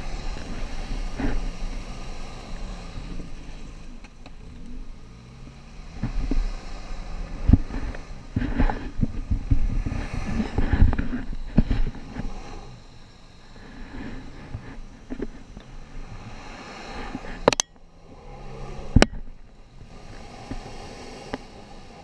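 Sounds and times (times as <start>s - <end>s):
off-road engines at low revs: 0.0s - 22.0s
wind rumble on microphone: 0.0s - 22.0s
vehicle knocks and thumps: 7.4s - 12.3s.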